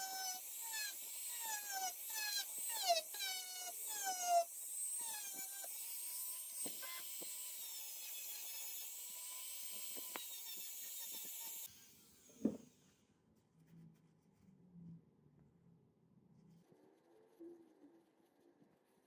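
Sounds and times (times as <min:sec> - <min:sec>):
rotary tool whining: 0:00.0 - 0:12.9.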